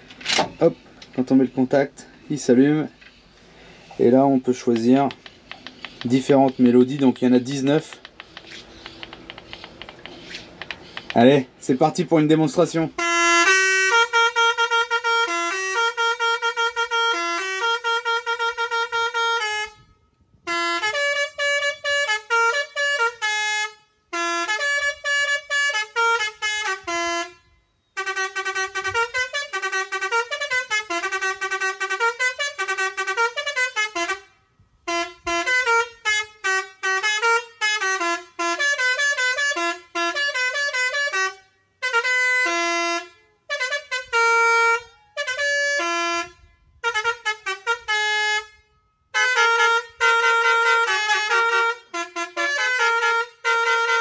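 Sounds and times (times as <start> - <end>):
musical air horn tunes: 13.0 - 54.0.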